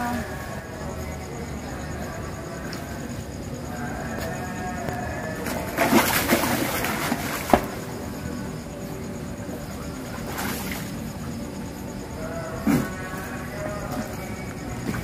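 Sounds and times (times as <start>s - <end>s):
water splashing: 5.4s - 8.0s, 10.0s - 11.2s.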